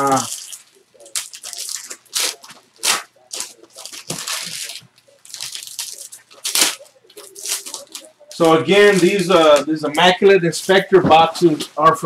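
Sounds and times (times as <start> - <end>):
packaging tearing and crinkling: 0.0 - 9.6.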